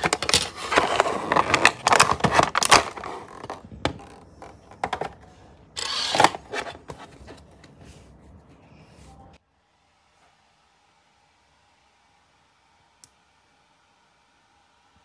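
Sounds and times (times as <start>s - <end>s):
plastic packaging rustling: 0.0s - 7.6s.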